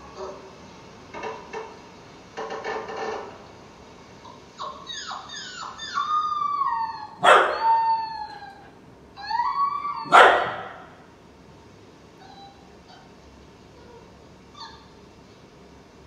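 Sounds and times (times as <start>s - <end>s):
puppy yelping: 4.2s - 11.0s, 12.2s - 13.1s, 13.8s - 15.0s
puppy howling and whining: 4.6s - 11.0s, 12.2s - 13.2s, 13.8s - 15.0s.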